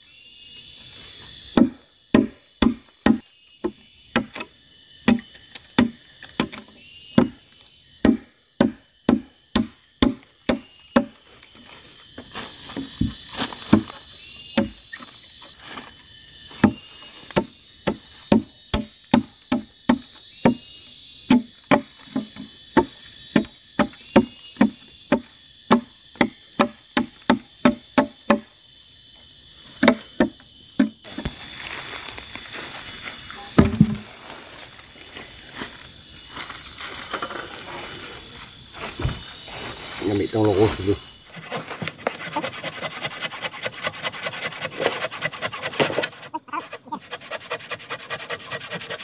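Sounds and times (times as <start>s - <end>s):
forest insects droning: 0.0s - 49.0s
hand tool striking timber: 1.6s - 7.4s, 8.0s - 11.2s, 12.7s - 14.0s, 14.6s - 14.8s, 16.6s - 20.6s, 21.3s - 28.5s, 29.8s - 31.3s, 44.8s - 46.1s.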